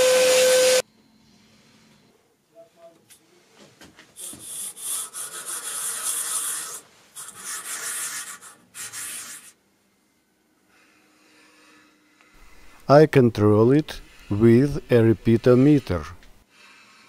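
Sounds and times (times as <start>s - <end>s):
abrasive block scraping metal: 11.2s - 17.0s.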